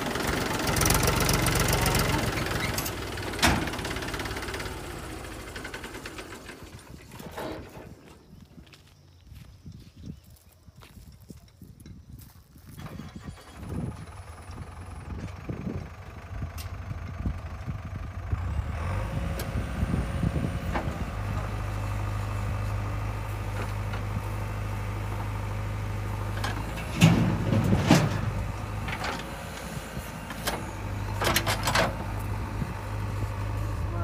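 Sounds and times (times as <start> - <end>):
diesel engines running: 0.0 - 9.5, 12.7 - 34.0
digger bucket clanking: 20.4 - 32.9.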